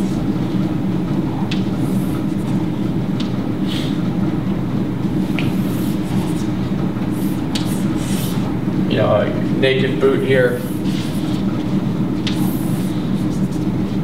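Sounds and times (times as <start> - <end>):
chalk tapping on chalkboard: 5.3 - 6.5, 7.2 - 8.5, 12.2 - 13.6.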